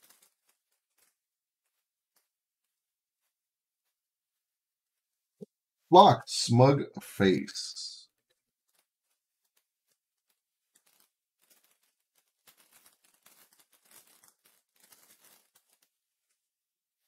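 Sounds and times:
trading cards and wrapper rustling: 0:00.0 - 0:02.4, 0:08.6 - 0:16.4.

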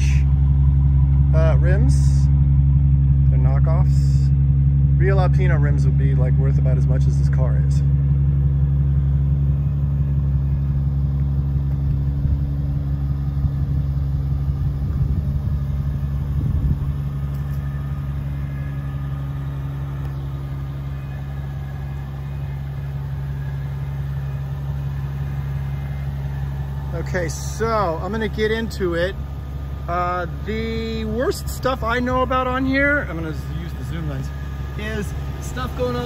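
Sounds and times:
car engine idling: 0:00.0 - 0:36.0.

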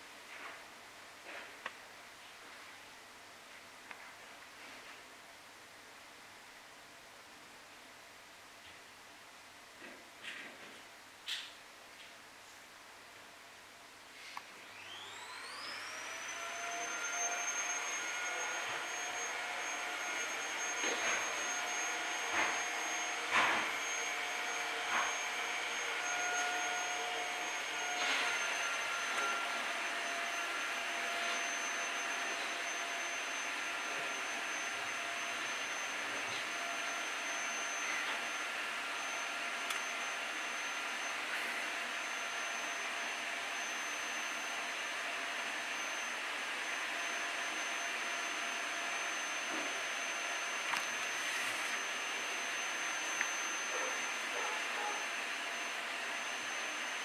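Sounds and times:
faint high whistle-like tone: 0:14.7 - 0:44.8, 0:47.0 - 0:57.0.

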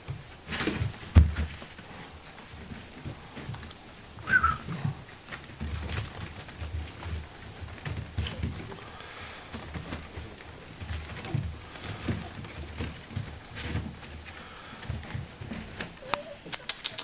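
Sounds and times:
puppies grunting and cooing: 0:01.5 - 0:05.1, 0:15.8 - 0:17.0
faint clicks: 0:15.8 - 0:17.0.

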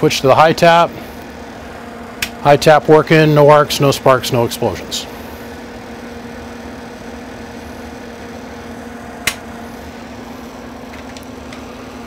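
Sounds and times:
electrical hum: 0:00.0 - 0:12.0
sharp click: 0:09.2 - 0:09.5.

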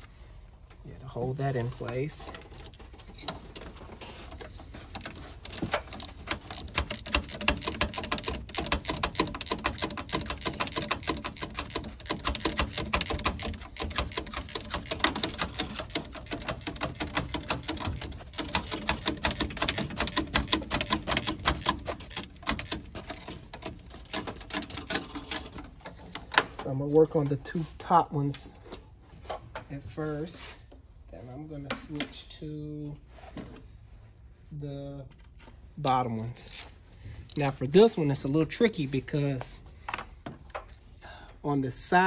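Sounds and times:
ratchet clicking: 0:05.0 - 0:25.2.

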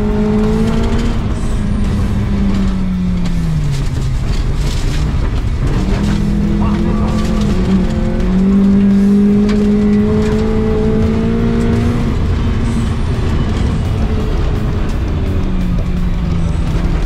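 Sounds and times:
rally car engine revving: 0:00.0 - 0:17.0.

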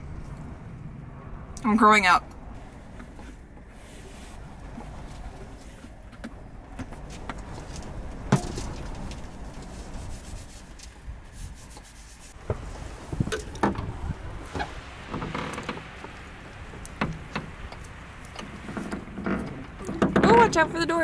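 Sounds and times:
wipe rustling in hands: 0:07.1 - 0:13.0.

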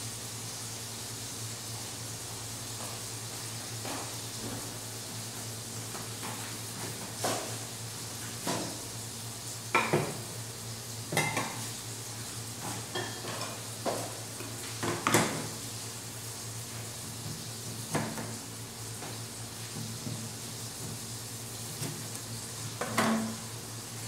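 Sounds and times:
low hum and hiss: 0:00.0 - 0:24.0
pots and dishes clinking: 0:11.1 - 0:11.6, 0:12.6 - 0:15.5, 0:22.8 - 0:23.5.

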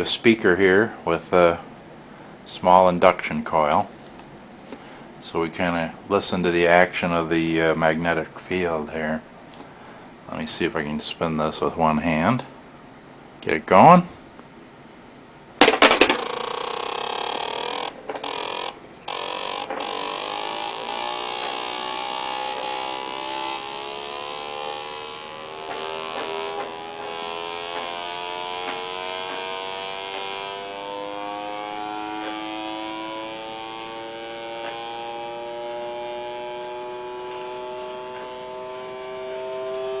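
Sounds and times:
buzzing tone from speaker: 0:15.6 - 0:40.0.

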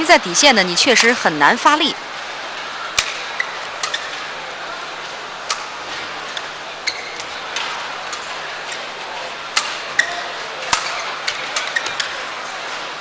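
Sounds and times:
steady arena hum: 0:00.0 - 0:13.0
rackets striking shuttlecock: 0:02.9 - 0:04.3, 0:05.4 - 0:08.3, 0:09.5 - 0:12.2
shoe squeaks on court: 0:06.8 - 0:07.4, 0:09.9 - 0:12.2.

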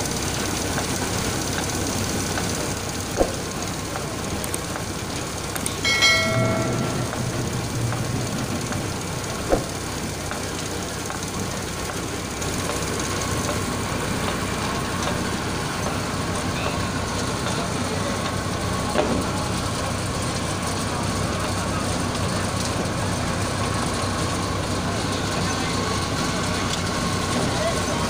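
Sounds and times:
roller conveyor running: 0:00.0 - 0:28.0
sharp knocks: 0:03.2 - 0:03.5, 0:05.8 - 0:09.8.

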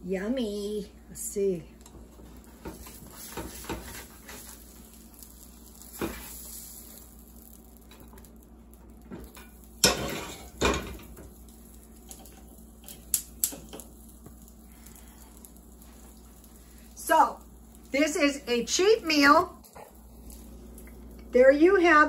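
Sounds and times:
spatula scraping frying pan: 0:02.7 - 0:04.7, 0:09.8 - 0:10.6
pan moved off stove: 0:09.2 - 0:11.1.

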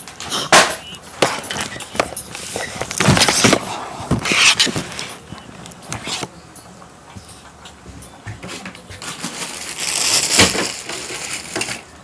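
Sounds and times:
plastic packaging crinkling: 0:00.1 - 0:06.3, 0:09.0 - 0:12.0.

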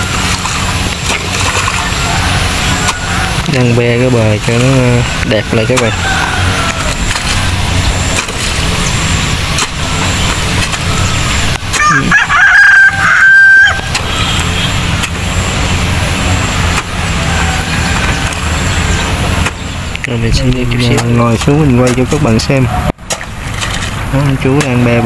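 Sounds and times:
low rumble: 0:00.0 - 0:24.2
rooster crowing: 0:01.8 - 0:03.6, 0:04.6 - 0:07.8, 0:10.9 - 0:14.6, 0:16.2 - 0:19.1
hoe knocking in wet mud: 0:20.8 - 0:22.4.

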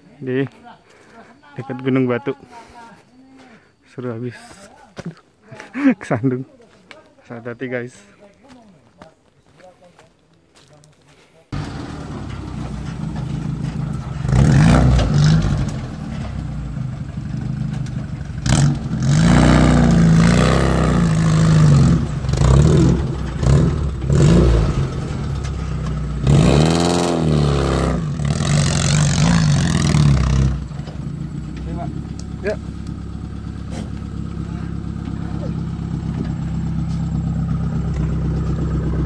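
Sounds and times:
pickup engine revving: 0:11.6 - 0:39.0.

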